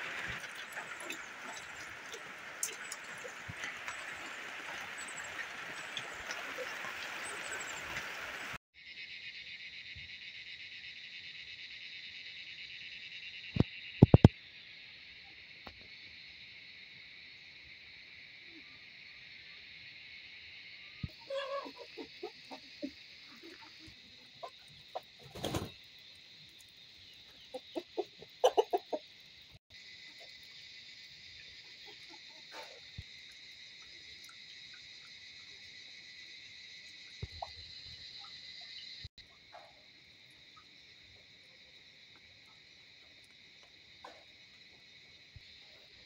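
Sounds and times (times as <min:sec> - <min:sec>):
chicken clucking: 0:27.5 - 0:29.0.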